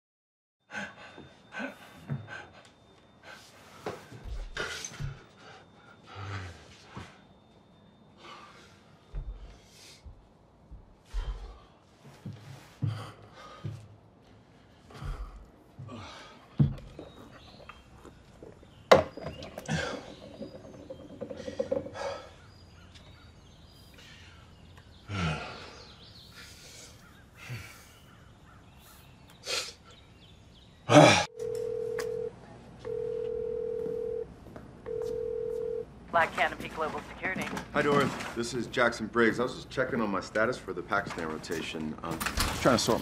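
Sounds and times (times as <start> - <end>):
knocks and rustles: 18.3 - 22.4
phone ringing tone beeps: 31.3 - 35.9.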